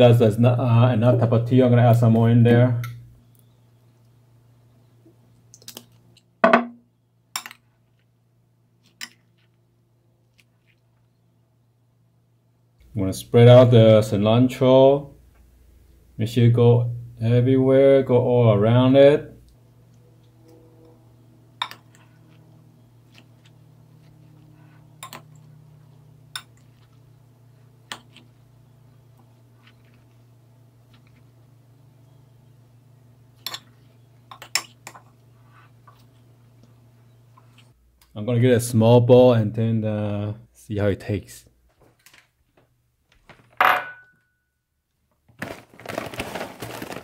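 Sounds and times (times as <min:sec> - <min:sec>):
glass bottle set on countertop: 0:06.4 - 0:06.8
low hum: 0:19.4 - 0:34.3
spoon clinking against glass bowl: 0:21.6 - 0:22.0.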